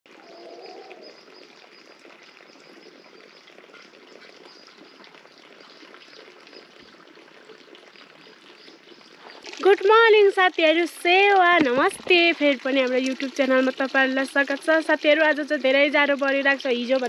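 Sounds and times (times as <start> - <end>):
light rain pattering: 0.1 - 17.0.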